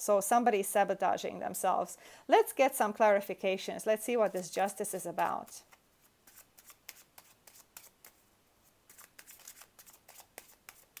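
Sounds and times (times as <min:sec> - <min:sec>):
cards being shuffled: 0:05.2 - 0:11.0.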